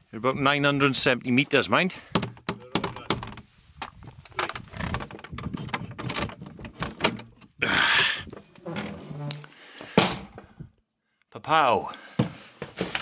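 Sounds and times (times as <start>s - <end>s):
metal bolt rattling on wooden door: 2.1s - 3.4s, 4.3s - 7.6s.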